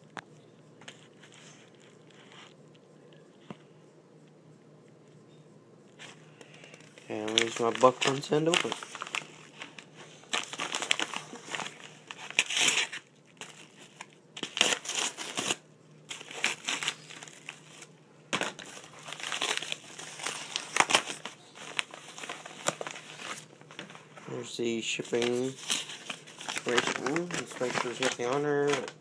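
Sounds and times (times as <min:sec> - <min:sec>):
paper envelope crinkling: 0:06.0 - 0:29.0.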